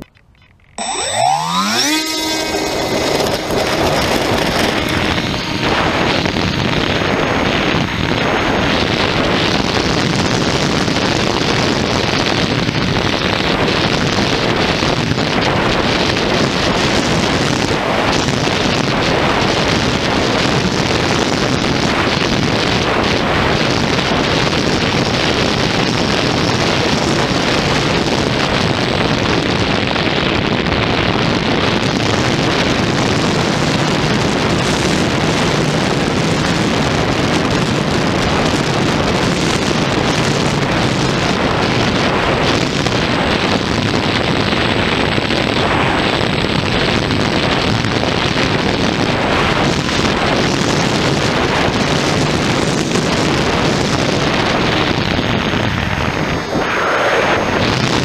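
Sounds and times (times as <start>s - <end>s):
model plane motor and propeller: 0.0s - 29.5s, 31.8s - 43.9s
wind buffeting microphone: 0.0s - 58.0s.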